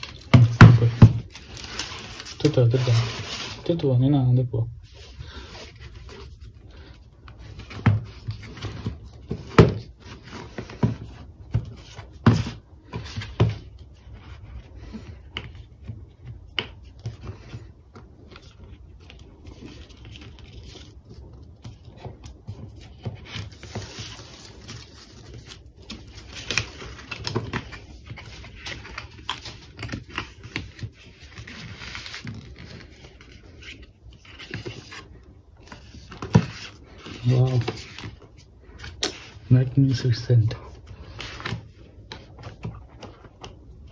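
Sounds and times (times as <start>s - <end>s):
paper seal peeling and rustling: 18.2s - 39.6s.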